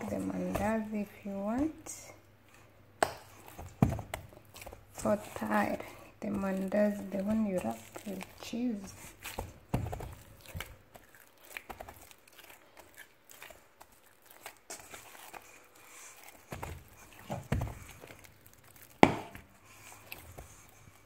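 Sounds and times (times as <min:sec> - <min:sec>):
dull thumps: 0:00.0 - 0:01.8, 0:03.0 - 0:10.8
dough slapping and tearing: 0:00.0 - 0:02.0, 0:02.6 - 0:21.0
hand kneading dough: 0:00.0 - 0:21.0.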